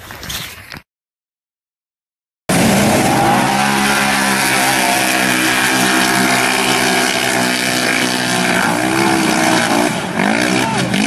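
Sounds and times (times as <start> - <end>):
engine droning under throttle: 2.5 - 11.0.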